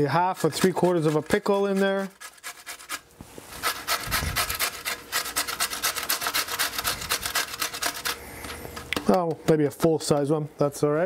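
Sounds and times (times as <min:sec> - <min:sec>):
grating on metal box grater: 0:00.0 - 0:08.2.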